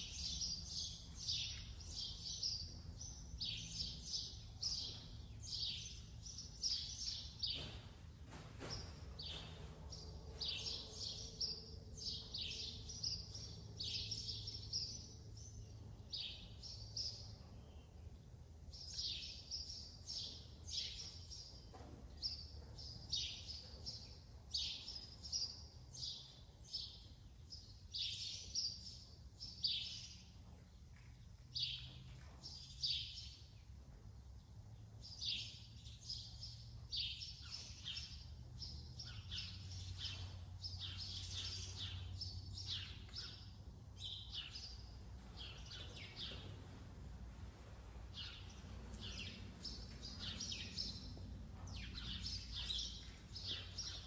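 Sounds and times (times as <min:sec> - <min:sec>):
small birds chirping: 0:00.0 - 0:54.0
faint low steady hum: 0:32.5 - 0:54.0.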